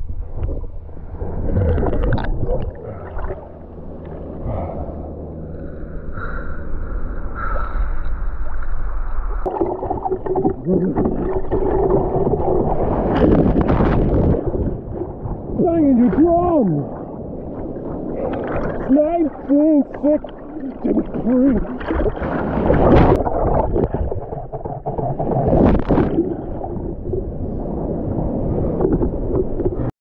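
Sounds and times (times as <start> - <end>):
sea water sloshing and gurgling: 0.0 - 6.4, 7.0 - 29.9
waves breaking: 8.8 - 29.9.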